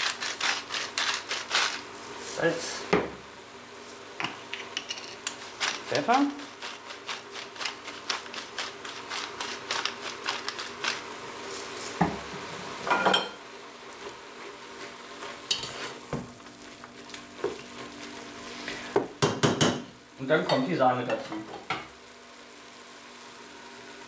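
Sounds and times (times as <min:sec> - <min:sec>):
spinach sizzling in a pot: 0:00.0 - 0:24.0
spatula scraping in a pot: 0:14.0 - 0:16.1.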